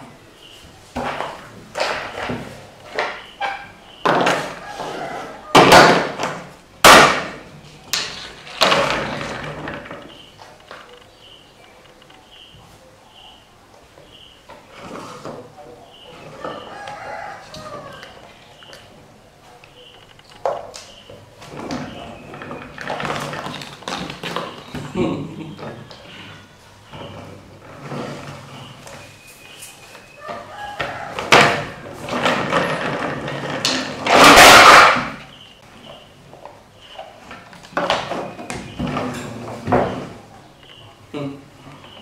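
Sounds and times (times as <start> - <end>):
plastic toy truck clattering: 31.3 - 35.2.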